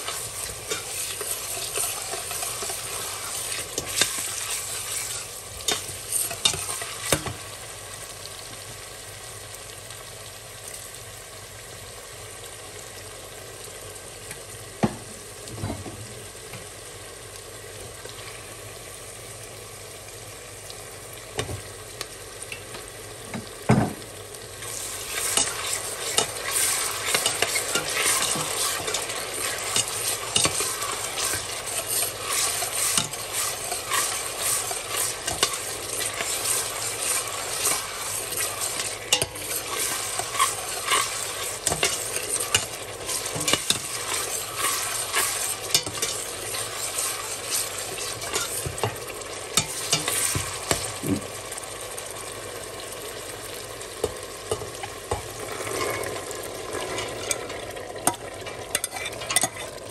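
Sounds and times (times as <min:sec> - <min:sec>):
metal spoon scraping a pot: 0:00.0 - 0:07.2, 0:24.7 - 0:49.0, 0:49.6 - 0:50.8, 0:55.5 - 0:56.2, 0:56.8 - 0:59.8
vegetables sizzling in a pot: 0:00.0 - 0:59.9.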